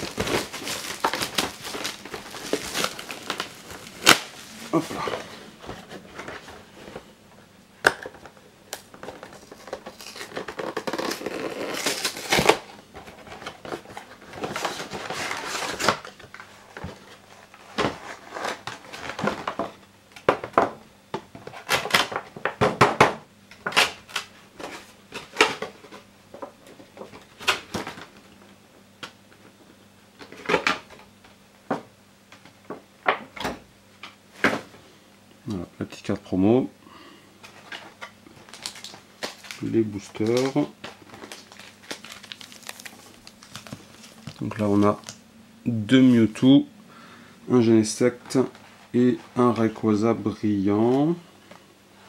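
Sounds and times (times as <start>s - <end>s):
packaging rustling and tearing: 0.0s - 7.0s, 8.7s - 19.7s, 37.4s - 45.2s.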